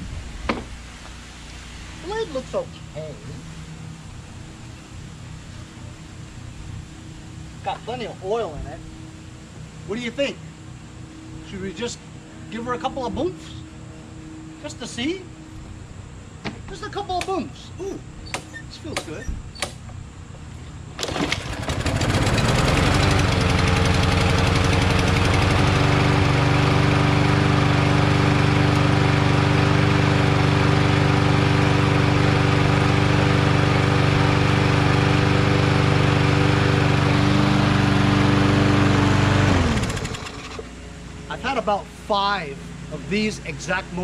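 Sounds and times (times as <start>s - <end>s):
lawn mower engine running: 16.4s - 44.0s.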